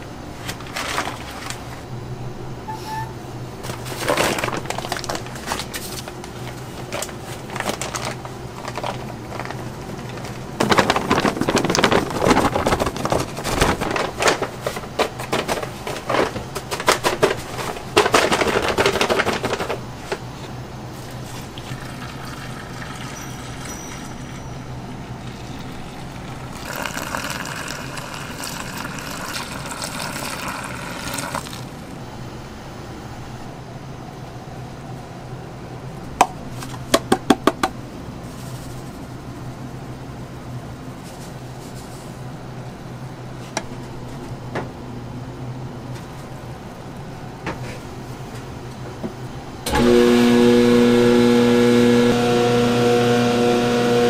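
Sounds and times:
steady low hum: 0.0s - 49.7s
scraping and clattering: 6.8s - 20.2s.

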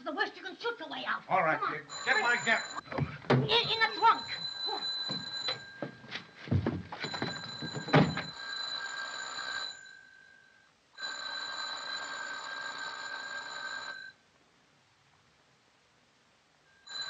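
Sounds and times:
electric doorbell ringing: 1.9s - 2.8s, 3.8s - 6.0s, 7.0s - 10.2s.

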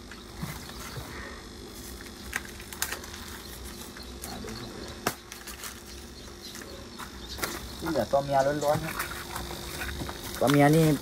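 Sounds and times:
faint insect hum: 0.0s - 11.0s.

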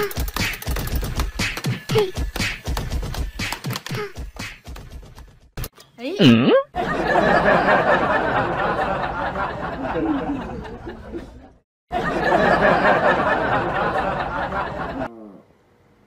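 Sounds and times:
audience laughter: 6.8s - 15.1s.

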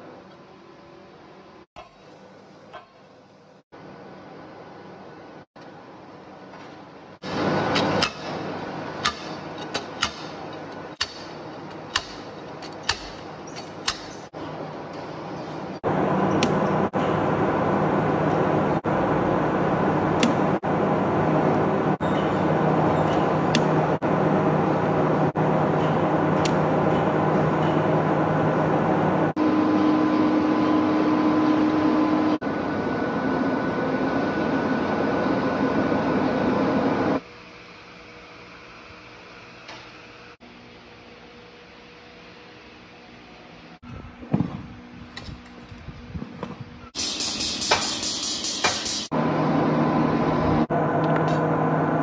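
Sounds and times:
machinery humming: 3.8s - 52.0s
workshop background noise: 5.6s - 32.6s, 44.2s - 51.5s.

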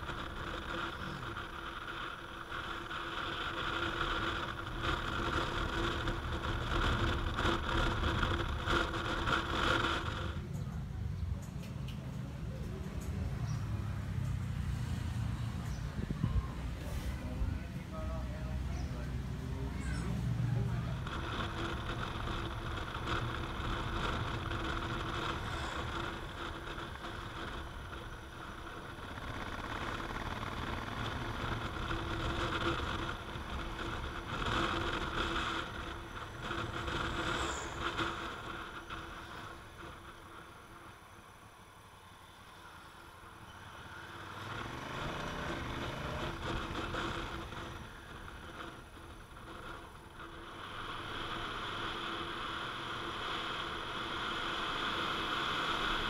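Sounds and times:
motorcycle engine running: 0.0s - 11.0s, 13.1s - 40.9s, 42.4s - 56.0s
wind noise: 15.3s - 17.9s.

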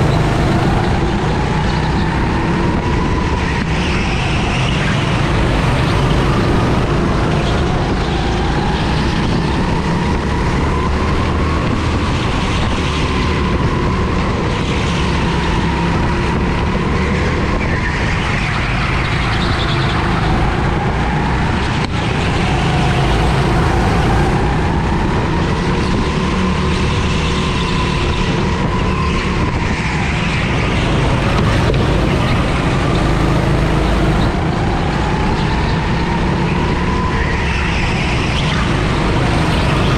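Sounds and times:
go-kart engine at racing speed: 0.0s - 39.9s
heavy wind: 0.0s - 39.9s
track rumble: 0.0s - 39.9s.

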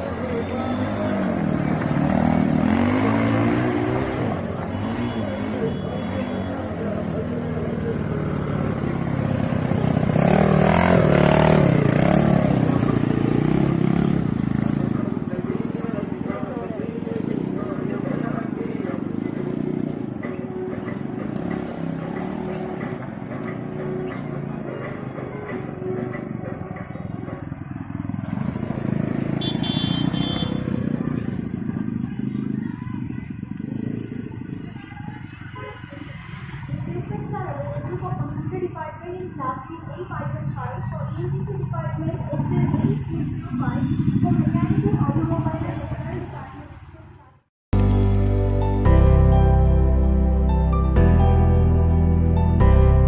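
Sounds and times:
motorcycle engine revving: 0.0s - 20.2s, 27.4s - 38.7s, 41.3s - 47.2s.

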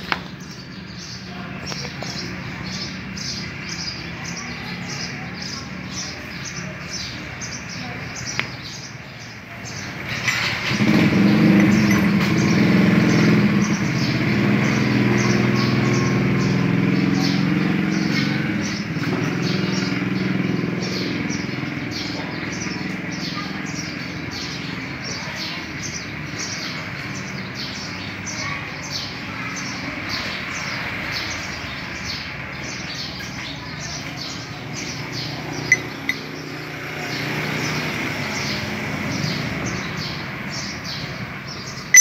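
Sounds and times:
bird chirping: 0.0s - 28.0s, 31.3s - 42.0s
vehicle engine running: 9.3s - 28.7s, 33.7s - 42.0s.

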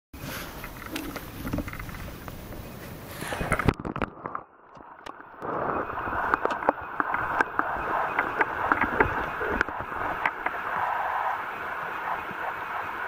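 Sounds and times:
muffled underwater hiss: 0.2s - 13.0s
small clicks and knocks: 0.6s - 2.6s.

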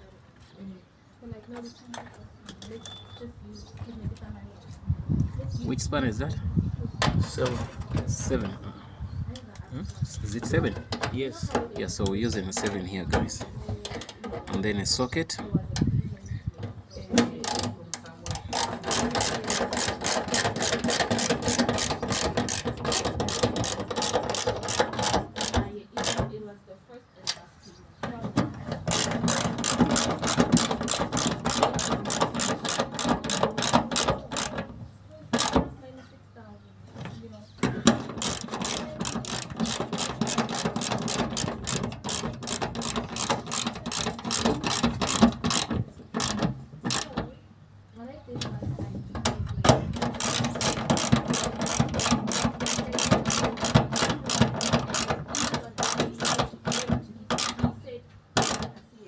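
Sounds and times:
ratchet clicking rapidly: 17.4s - 26.2s, 28.8s - 34.7s, 35.4s - 35.6s, 37.9s - 47.2s, 50.0s - 57.7s, 58.4s - 58.7s.

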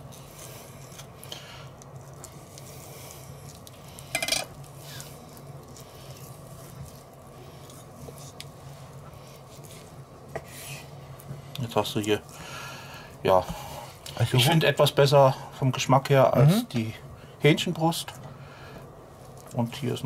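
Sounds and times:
knife cutting and scraping meat: 0.0s - 11.0s
steady low hum: 0.0s - 20.0s.

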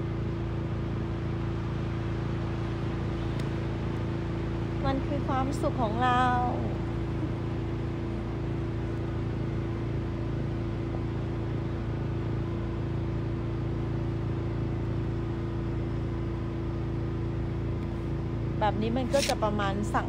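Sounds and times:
motor humming: 0.0s - 20.0s.

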